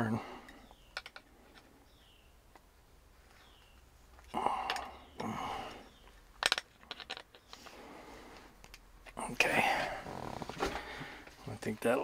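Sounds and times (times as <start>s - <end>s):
sharp metal clicks: 6.4s - 7.5s.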